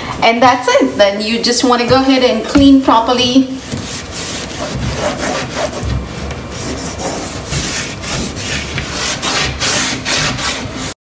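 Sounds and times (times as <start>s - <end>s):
cloth wiping wood: 3.6s - 10.9s.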